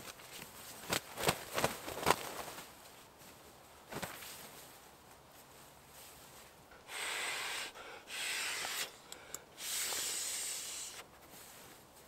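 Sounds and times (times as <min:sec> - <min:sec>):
breath blown into inflatable: 0:06.9 - 0:09.0, 0:09.6 - 0:11.0.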